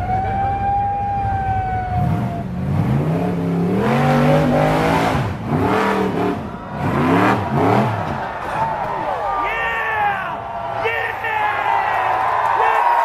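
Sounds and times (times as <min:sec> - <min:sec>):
buggy engine revving hard: 0:00.0 - 0:08.6.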